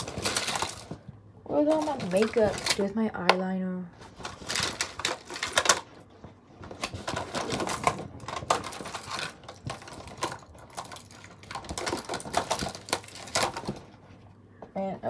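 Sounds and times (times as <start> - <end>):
makeup items clicking and rattling: 1.6 - 2.9, 6.8 - 13.8.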